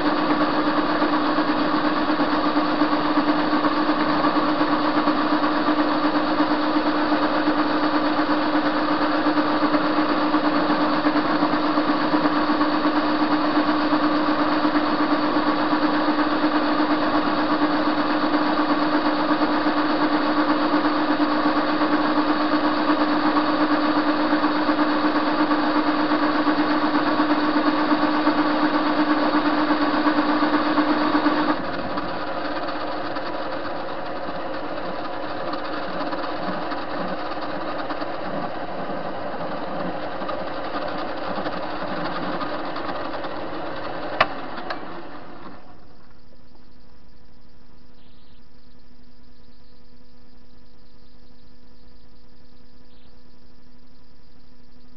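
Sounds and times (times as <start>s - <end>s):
lathe machine hum: 0.0s - 54.8s.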